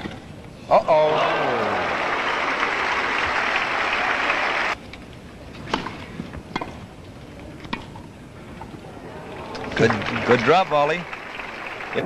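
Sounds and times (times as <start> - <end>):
crowd applauding: 0.9 - 4.8, 9.1 - 12.0.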